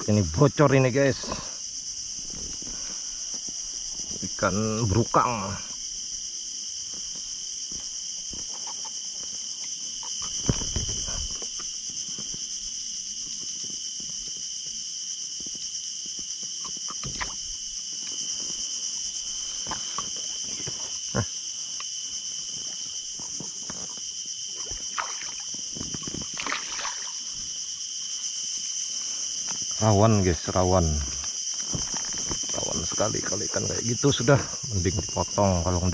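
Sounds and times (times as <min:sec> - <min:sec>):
insects chorus: 0:00.0 - 0:35.9
fishing gear clicks and knocks: 0:31.7 - 0:32.8.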